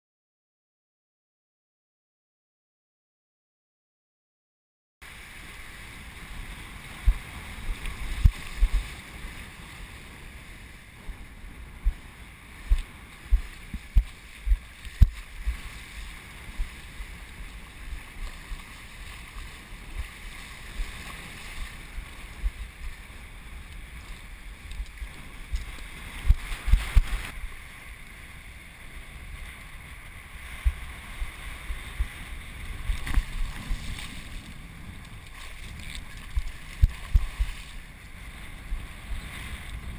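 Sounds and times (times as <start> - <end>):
surf washing: 5.0 - 39.9
wind buffeting microphone: 5.1 - 39.9.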